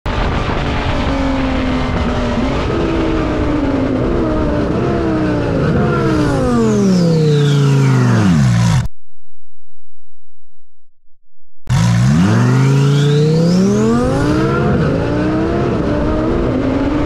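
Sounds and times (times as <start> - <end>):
sports car engine running: 11.7 - 17.0.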